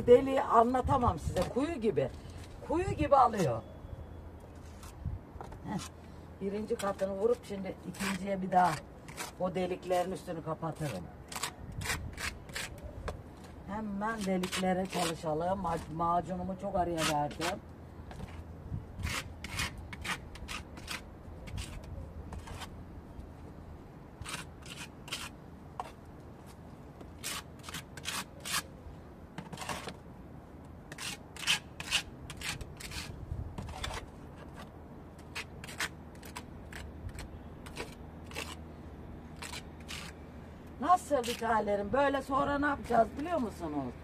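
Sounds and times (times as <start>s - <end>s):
putty knife scraping plaster: 7.9s - 9.4s, 10.7s - 12.8s, 14.2s - 16.0s, 17.0s - 18.4s, 19.0s - 22.7s, 24.2s - 26.0s, 27.2s - 28.7s, 29.4s - 30.0s, 30.9s - 38.6s, 39.4s - 40.2s.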